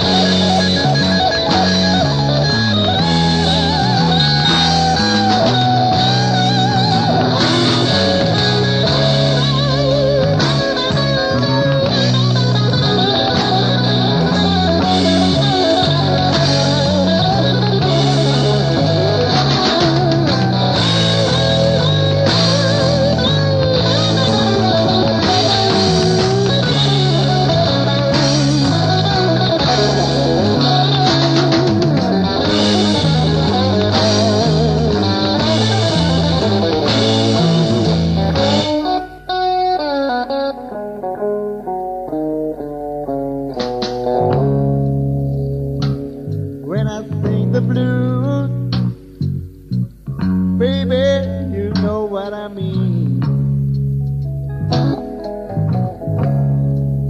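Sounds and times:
steady drum beat: 0.0s - 39.2s
bass guitar: 0.0s - 57.0s
electric guitar lead: 0.0s - 57.0s.

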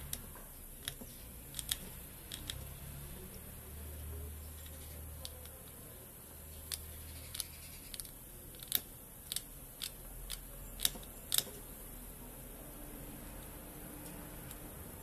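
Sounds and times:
light sharp clicks and ticks: 0.0s - 3.4s.

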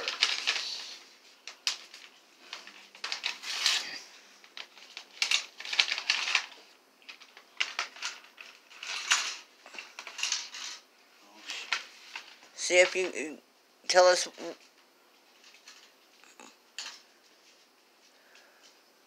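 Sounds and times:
packaging crinkling: 0.0s - 10.8s.

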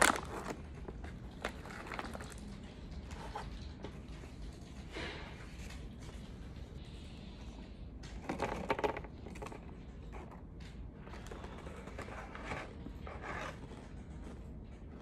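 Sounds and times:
plastic snack bag crinkling: 0.0s - 4.1s.

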